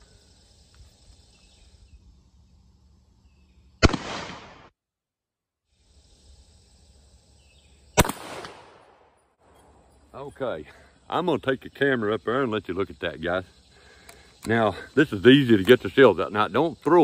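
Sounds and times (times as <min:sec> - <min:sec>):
shotgun shots: 0:03.8 - 0:04.7, 0:08.0 - 0:09.1.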